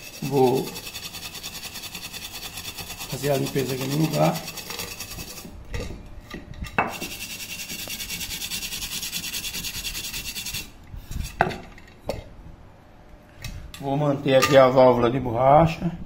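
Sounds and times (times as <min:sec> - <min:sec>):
steel wool scrubbing metal: 0:00.0 - 0:05.5, 0:06.9 - 0:11.4.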